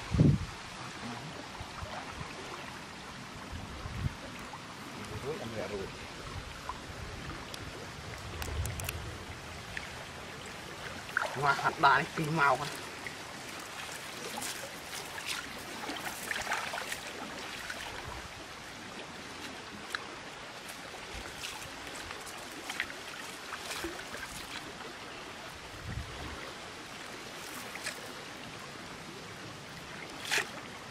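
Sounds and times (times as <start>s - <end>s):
shallow water sloshing and dripping: 4.2s - 28.6s, 29.7s - 30.9s
small splashes: 9.7s - 28.4s, 29.9s - 30.8s.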